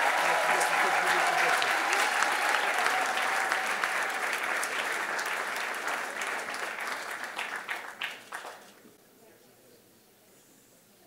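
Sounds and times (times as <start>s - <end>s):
audience applauding: 0.0s - 8.8s.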